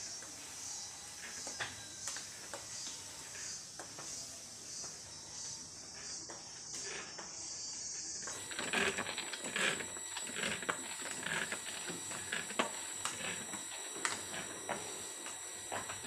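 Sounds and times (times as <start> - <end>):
steady spray hiss: 0.0 - 16.0
sprayer pump clicking and creaking: 8.2 - 16.0.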